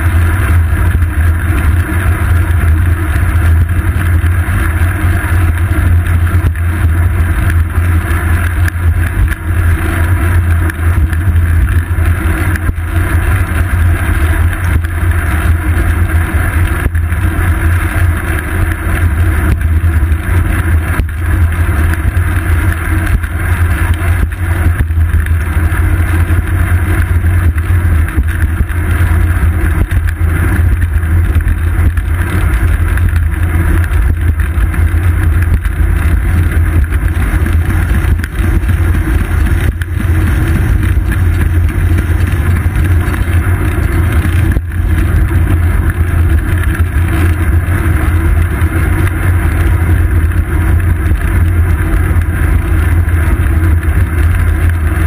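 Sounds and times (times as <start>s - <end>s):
road vibration rumble: 0.0s - 55.0s
wind rumble: 0.0s - 55.0s.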